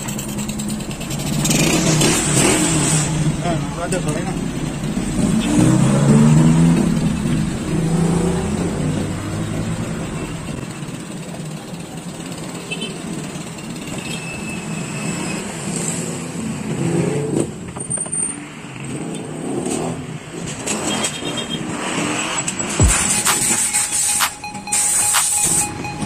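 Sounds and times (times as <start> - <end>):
vehicle engine running: 0.0 - 2.6, 3.2 - 13.8
street noise: 0.0 - 26.0.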